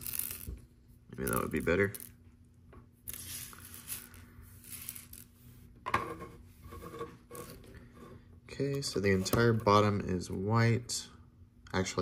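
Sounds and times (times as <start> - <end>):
plastic tiles sliding on tabletop: 3.1 - 5.3.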